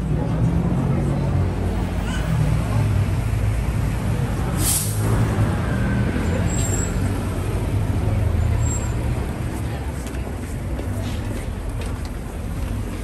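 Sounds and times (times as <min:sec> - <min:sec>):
street traffic: 0:00.0 - 0:13.0
bus air brakes hissing: 0:04.5 - 0:05.3.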